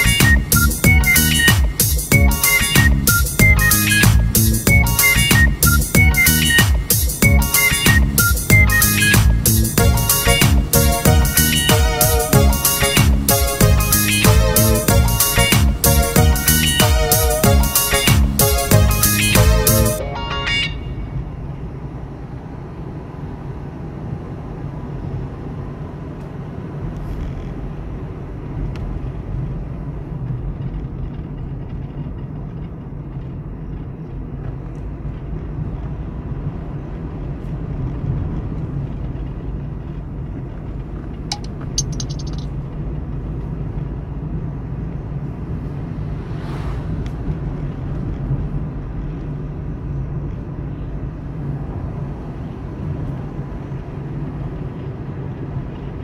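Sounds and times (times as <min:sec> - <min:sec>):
car engine and tyre rumble: 0:00.0 - 0:19.8, 0:20.5 - 0:56.0
rapid sharp clicks: 0:41.3 - 0:42.5.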